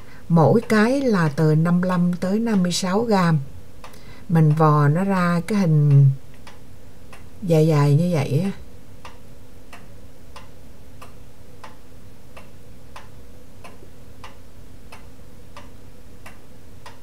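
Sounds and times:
faint steady hum: 0:00.0 - 0:17.0
soft ticking: 0:00.3 - 0:17.0.

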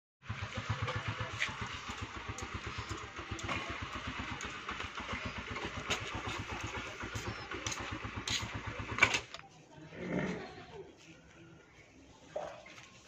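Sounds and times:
motorcycle engine idling: 0:00.2 - 0:09.4.

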